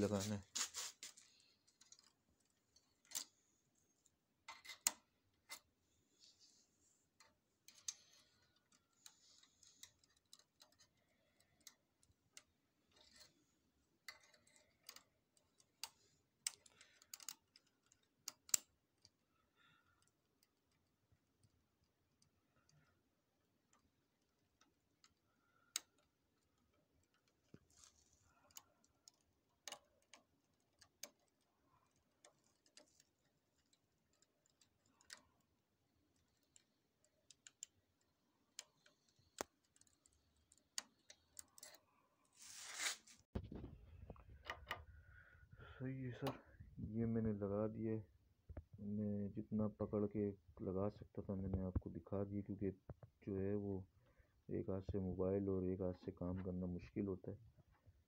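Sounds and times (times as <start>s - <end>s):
plastic parts clicking and rustling: 0.0s - 5.8s, 7.1s - 19.2s, 23.6s - 42.0s.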